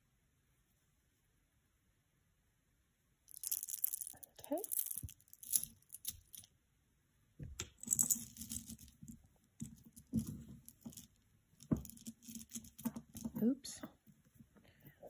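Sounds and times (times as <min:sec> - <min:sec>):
metal chain clinking and rustling: 0:03.3 - 0:06.5, 0:07.6 - 0:14.0.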